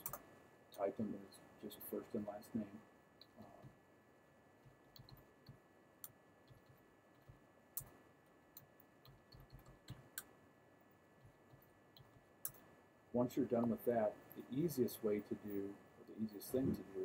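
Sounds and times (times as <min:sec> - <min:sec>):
faint keyboard typing: 0:00.0 - 0:01.0, 0:03.2 - 0:03.8, 0:04.6 - 0:12.7, 0:13.5 - 0:14.7.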